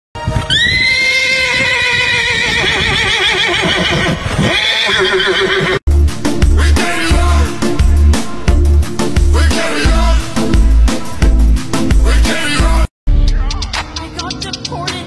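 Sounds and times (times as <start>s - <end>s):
horse whinnying: 0.5s - 5.8s
music with heavy bass beat: 5.9s - 15.0s.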